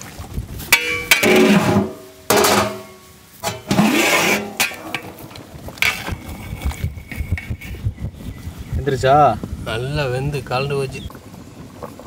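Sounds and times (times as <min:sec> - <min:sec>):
metal lid scraping off pot: 0:00.8 - 0:05.2, 0:05.8 - 0:07.8
curry simmering with soft pops: 0:11.1 - 0:12.0.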